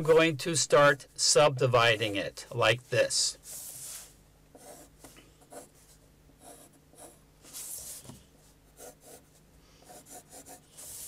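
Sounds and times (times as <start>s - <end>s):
pencil scratching on paper: 4.6s - 4.9s, 8.8s - 11.0s.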